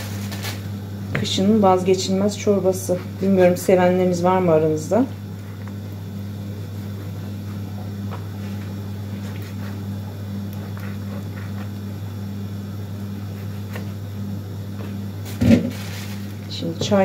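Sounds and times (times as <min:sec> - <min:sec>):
appliance electrical hum: 0:00.0 - 0:17.0.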